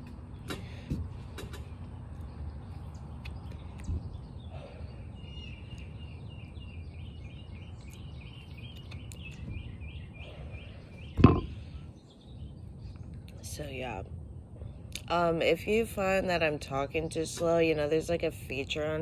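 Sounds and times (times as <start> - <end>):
low outdoor hum: 0.0 - 19.0
thump on microphone: 11.2 - 11.5.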